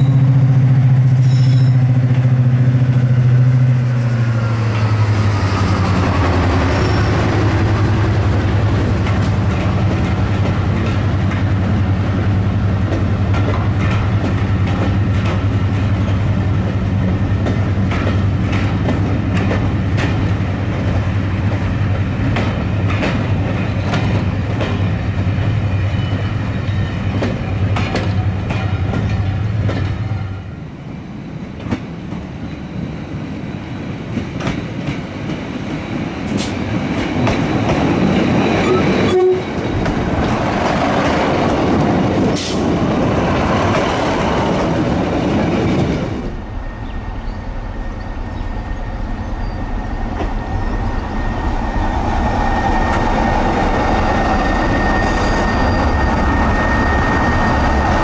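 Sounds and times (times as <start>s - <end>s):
train wheels clicking on rails: 0.0s - 30.3s, 31.4s - 47.0s.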